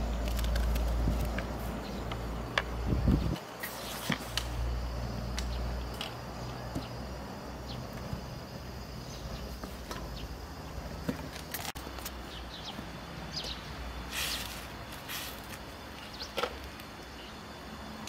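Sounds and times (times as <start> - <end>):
small birds chirping: 5.4 - 17.6.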